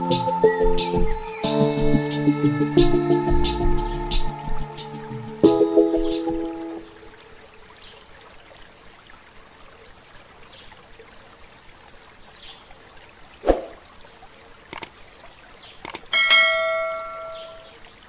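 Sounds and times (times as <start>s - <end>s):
trickle of water: 6.8s - 18.0s
mouse clicks: 14.7s - 14.9s, 15.8s - 16.1s
bell ding: 16.1s - 17.7s.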